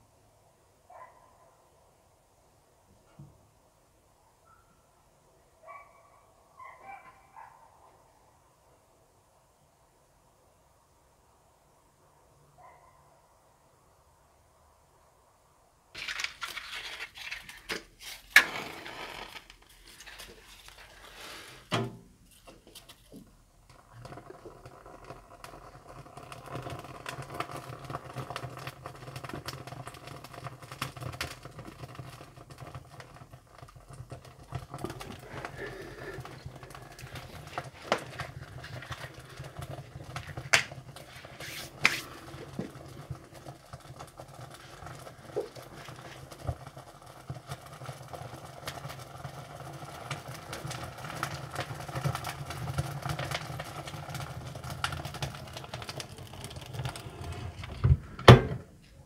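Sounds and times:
firewood crackling: 0:15.9 - 0:59.0.

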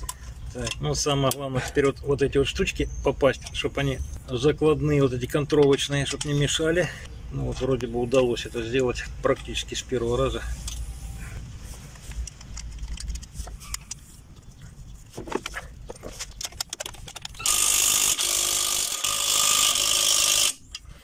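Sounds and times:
light metal clicks and knocks: 0:05.2 - 0:09.8
power tool driving bolts: 0:16.5 - 0:20.8.

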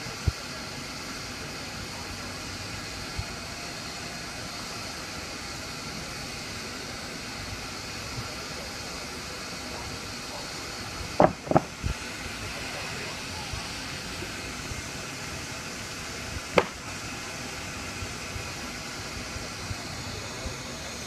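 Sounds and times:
steam engine hissing: 0:00.0 - 0:21.0
loud knocks: 0:11.2 - 0:11.7.

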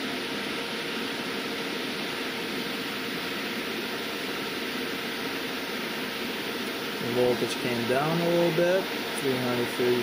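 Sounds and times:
cooling fan running: 0:00.0 - 0:10.0.

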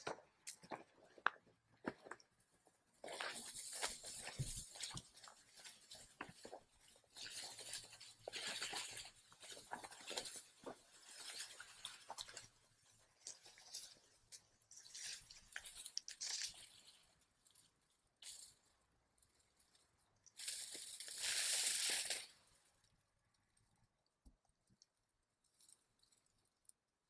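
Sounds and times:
dry wheat stalks rustling: 0:03.0 - 0:18.7, 0:19.3 - 0:22.7.

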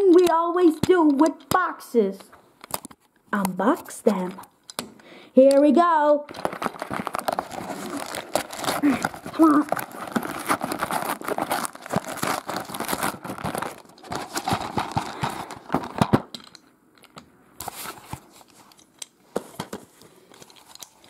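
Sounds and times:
paper mailer tearing and crinkling: 0:06.3 - 0:16.2
plastic case handling clicks: 0:08.3 - 0:17.3.

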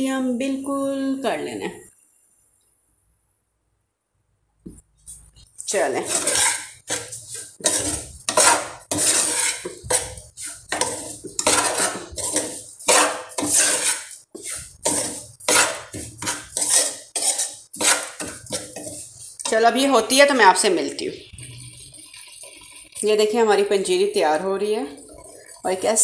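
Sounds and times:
metal spoon scraping steel pan: 0:05.7 - 0:20.0.

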